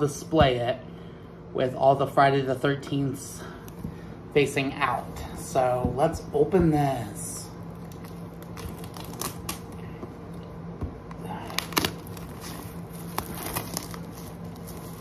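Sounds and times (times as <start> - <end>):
plastic wrap crinkling: 7.4 - 9.9, 11.2 - 15.0.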